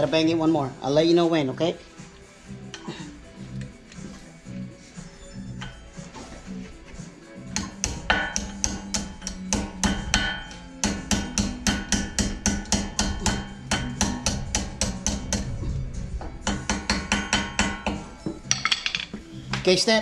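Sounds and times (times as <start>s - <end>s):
background music: 0.0s - 20.0s
hammer tapping on metal: 7.5s - 15.5s, 16.2s - 19.6s.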